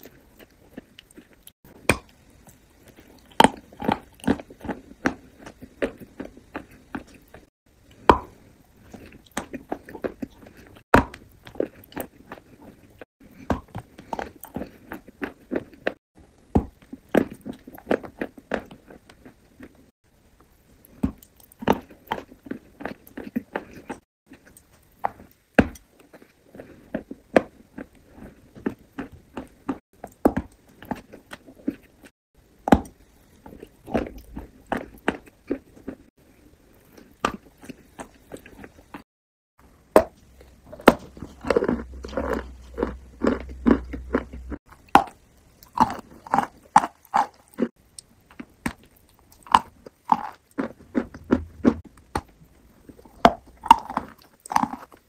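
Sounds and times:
wet chewing: 0:00.0 - 0:16.0, 0:32.7 - 0:39.1, 0:40.0 - 0:55.0.

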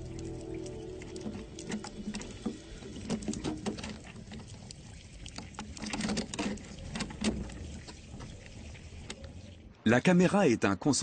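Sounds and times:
low hum: 0:00.0 - 0:03.9.

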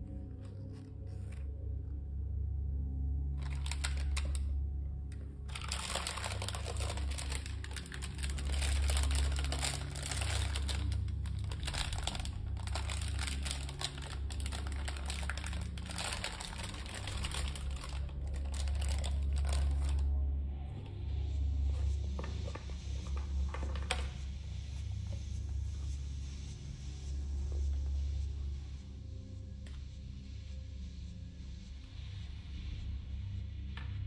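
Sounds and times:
plastic and paper wrapping crinkling: 0:03.4 - 0:20.1, 0:21.6 - 0:24.3.

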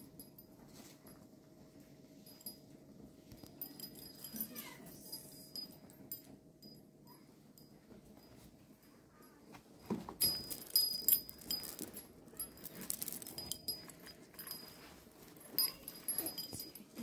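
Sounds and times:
ornaments jingling: 0:03.3 - 0:06.9, 0:10.2 - 0:17.0.

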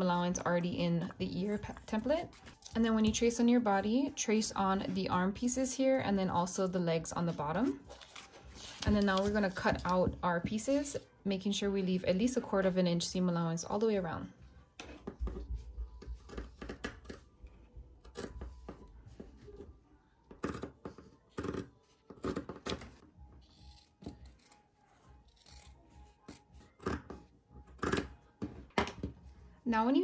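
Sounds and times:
scissors cutting fabric: 0:23.4 - 0:28.2.

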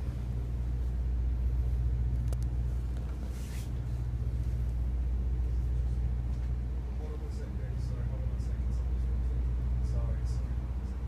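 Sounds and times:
bus engine hum: 0:00.0 - 0:11.0
click: 0:02.2 - 0:03.1.

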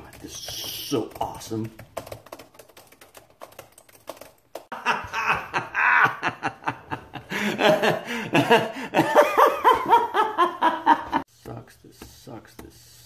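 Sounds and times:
man laughing hard: 0:04.7 - 0:11.2.

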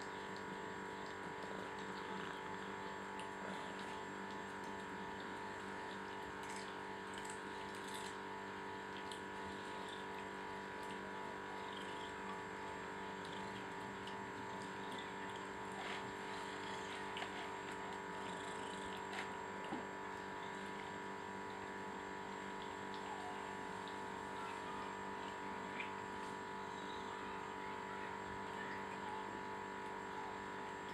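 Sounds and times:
cats chewing and licking: 0:00.0 - 0:21.7.

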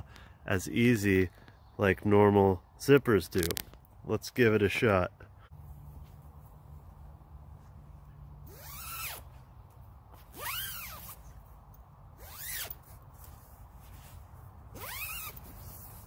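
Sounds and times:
sleeping bag zipper rasping: 0:08.4 - 0:09.3, 0:10.2 - 0:11.2, 0:12.2 - 0:13.3, 0:14.7 - 0:16.0.

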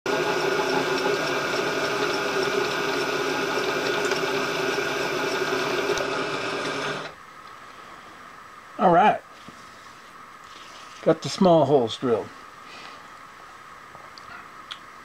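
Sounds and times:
milling machine motor whining: 0:00.1 - 0:07.2.

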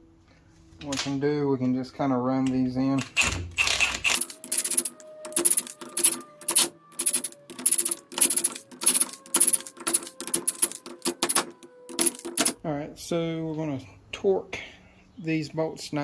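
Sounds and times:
impact wrench hammering: 0:03.0 - 0:04.3.

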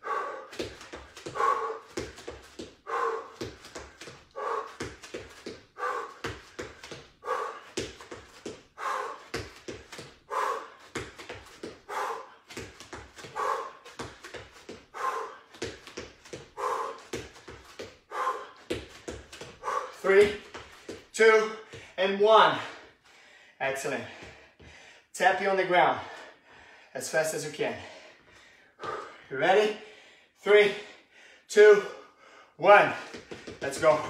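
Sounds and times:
feet landing on exercise mat: 0:10.8 - 0:11.8, 0:18.6 - 0:19.6, 0:32.9 - 0:34.0.

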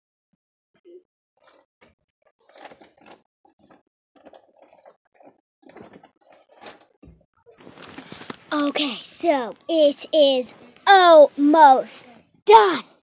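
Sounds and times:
beaded cord rustling: 0:07.6 - 0:09.7.

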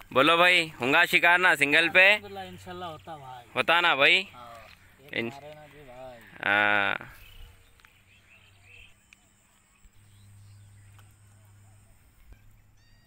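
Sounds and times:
soft bird chirps: 0:02.2 - 0:13.0
low steady hum: 0:07.2 - 0:13.0.

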